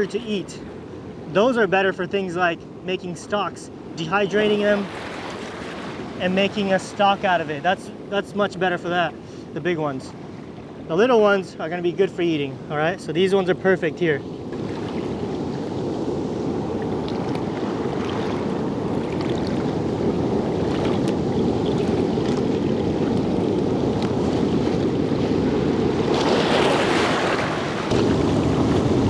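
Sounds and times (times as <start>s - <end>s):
wave splashing: 3.0s - 9.2s, 14.0s - 29.0s
seawater washing over rocks: 20.5s - 29.0s.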